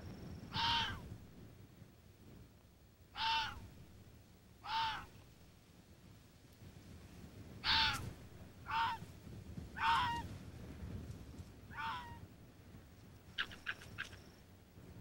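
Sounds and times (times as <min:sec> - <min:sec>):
fox cubs yelping: 0:00.5 - 0:01.1, 0:03.2 - 0:03.6, 0:04.6 - 0:05.1, 0:07.6 - 0:08.0, 0:08.7 - 0:09.0, 0:09.8 - 0:10.3, 0:11.7 - 0:12.2, 0:13.4 - 0:14.3.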